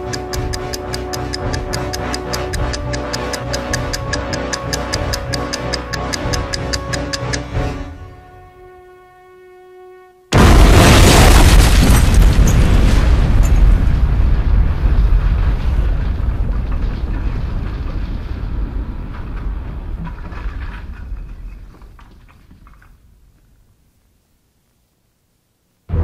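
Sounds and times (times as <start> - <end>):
loud explosion blast: 10.3 - 20.0.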